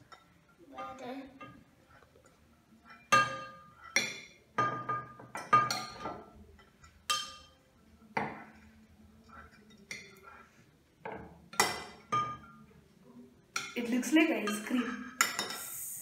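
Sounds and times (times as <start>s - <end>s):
metal spoons clinking on glass: 2.8s - 7.6s, 13.6s - 15.7s.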